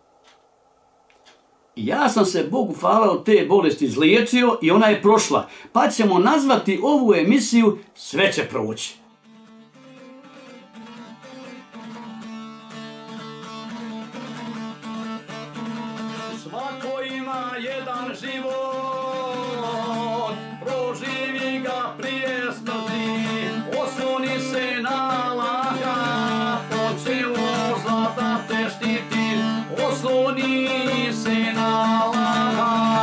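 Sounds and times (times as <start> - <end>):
plucked lute melody over drone: 9.2 - 16.4.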